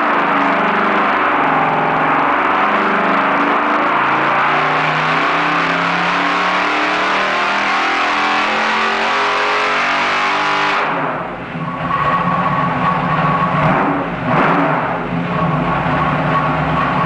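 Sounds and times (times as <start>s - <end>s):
engine running with open exhaust: 0.0s - 17.0s.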